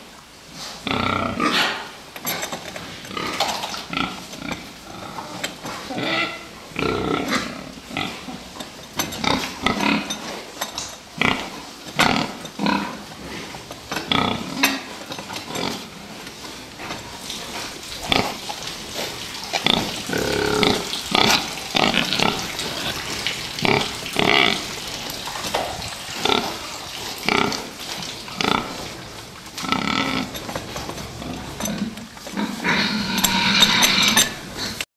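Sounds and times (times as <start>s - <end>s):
pigs grunting and calling: 0.8s - 2.0s, 3.1s - 10.4s, 11.1s - 34.8s.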